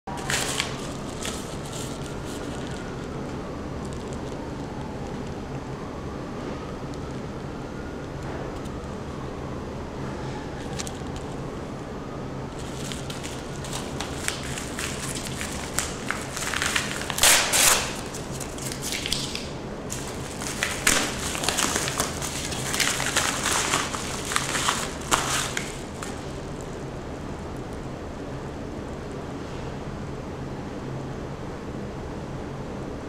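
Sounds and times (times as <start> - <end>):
mailer flap ripping: 0.1 - 2.8, 12.6 - 26.4
paper crinkling and rustling: 0.1 - 5.4, 12.6 - 26.8.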